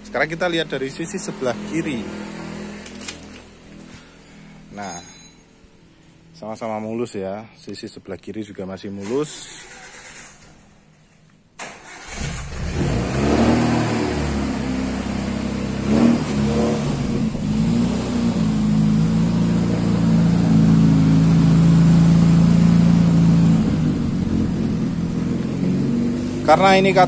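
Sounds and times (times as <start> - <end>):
car engine starting and revving: 0.3 - 3.4, 9.6 - 10.5, 11.6 - 27.0.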